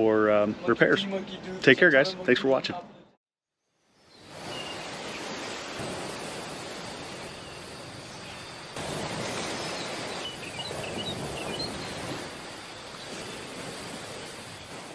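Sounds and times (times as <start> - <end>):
bird chirps: 3.9 - 5.6, 7.2 - 13.4
ocean surf: 4.2 - 14.9.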